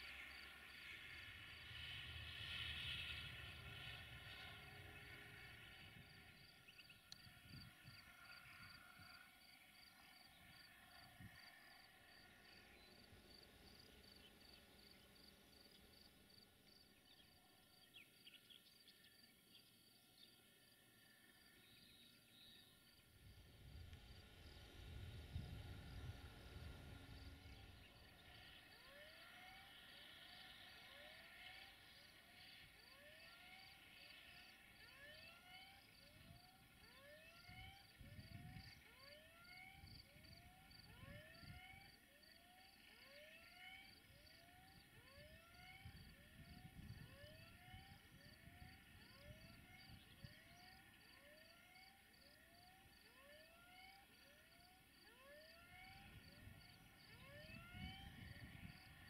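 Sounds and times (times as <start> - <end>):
faint high-pitched chirping: 9.8 - 32.6, 42.9 - 52.7
low rumble: 23.2 - 28.4.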